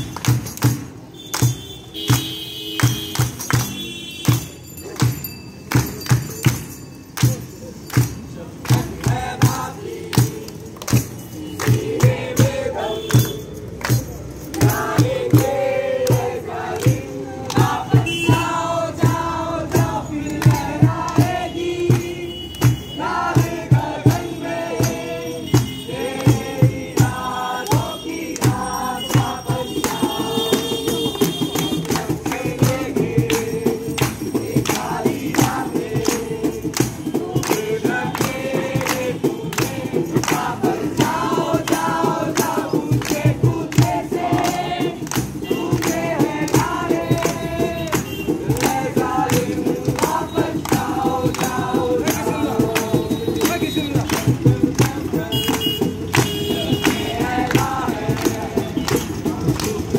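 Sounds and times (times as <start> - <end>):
acoustic guitar: 0.0 - 59.9
group singing: 8.3 - 59.9
barrel drum beating: 13.9 - 59.9.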